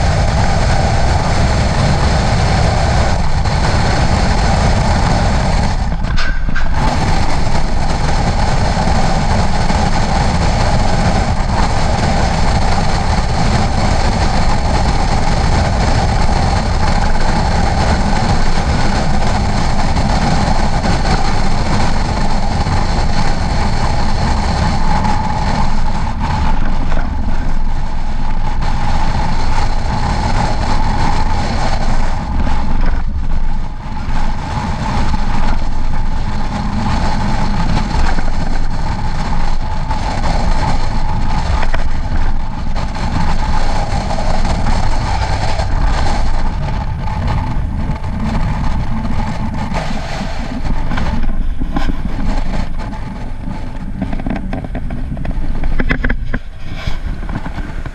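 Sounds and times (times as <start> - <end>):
steady whine: 0.0 - 57.9
vehicle engine rumble: 0.0 - 57.9.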